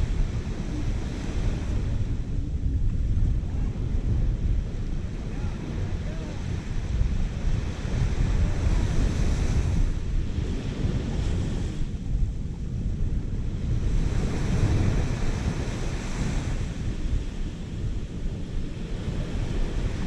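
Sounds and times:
surf at shoreline: 0:00.0 - 0:20.0
wind buffeting microphone: 0:00.0 - 0:20.0.

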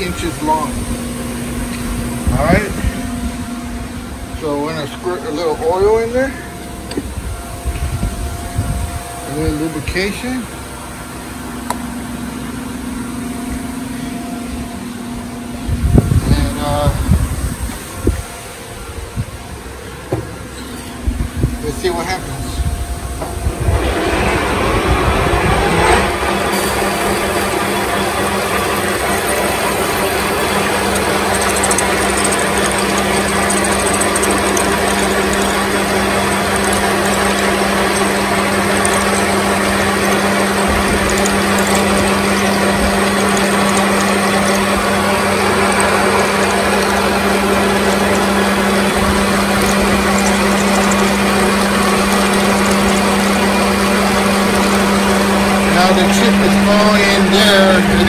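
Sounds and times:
steady low hum: 0:00.0 - 0:58.0
drill boring into plastic: 0:26.5 - 0:58.0
metal lathe rattling: 0:26.5 - 0:58.0.

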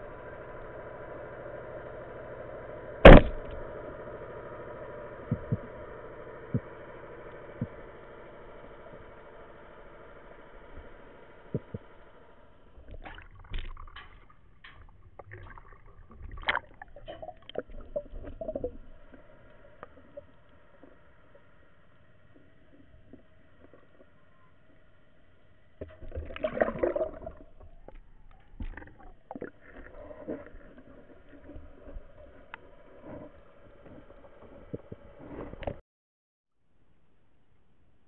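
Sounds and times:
underwater hum: 0:00.0 - 0:35.8
speargun firing snap: 0:03.1 - 0:03.6
splashing and gurgling water: 0:12.8 - 0:21.0, 0:25.8 - 0:33.4.

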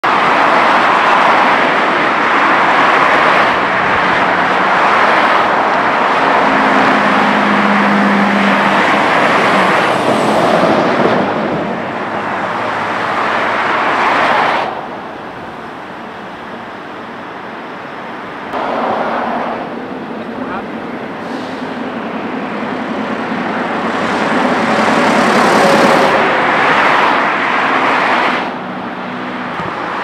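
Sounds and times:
freeway traffic rushing: 0:00.0 - 0:30.0
low engine drone: 0:14.5 - 0:27.1.

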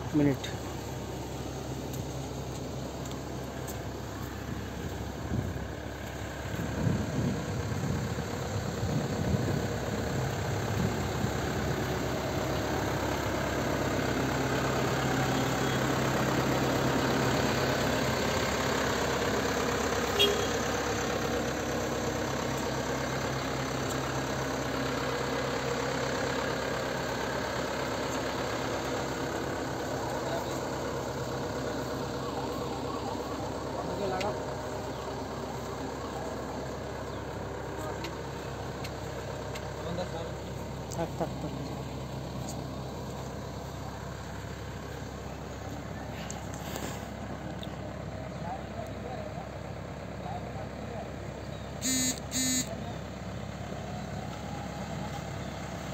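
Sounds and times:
diesel engine idling: 0:00.0 - 0:55.9.

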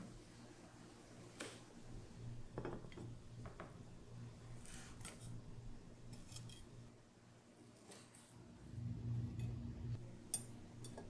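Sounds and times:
low steady hum: 0:00.0 - 0:11.0
knife scraping ceramic plate: 0:06.1 - 0:06.7.

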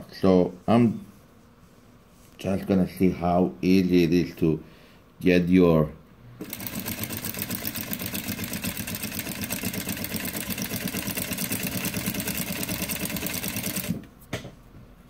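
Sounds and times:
sewing machine running: 0:06.4 - 0:14.1.

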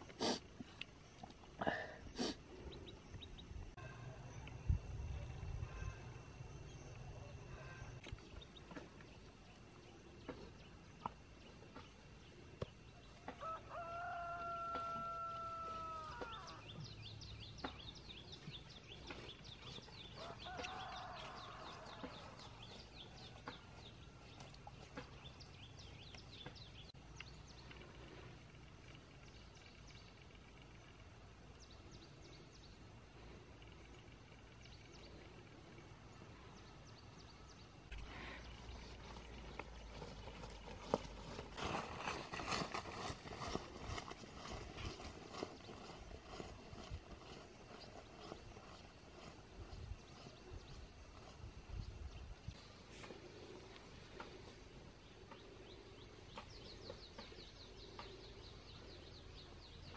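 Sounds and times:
small birds chirping: 0:00.2 - 0:59.9
rooster crowing: 0:13.3 - 0:16.6, 0:20.2 - 0:22.6.

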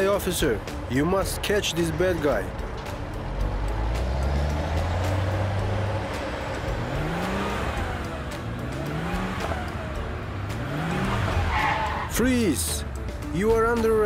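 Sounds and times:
car engine accelerating: 0:02.1 - 0:13.4.

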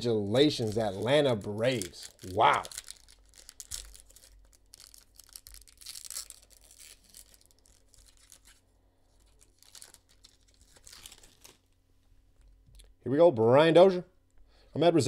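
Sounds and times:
foil pack crinkling: 0:00.2 - 0:11.8.

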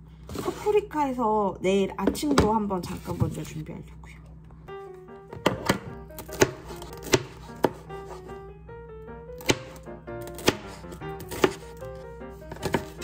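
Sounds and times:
knife slicing peppers: 0:05.4 - 0:08.3, 0:09.4 - 0:13.0.

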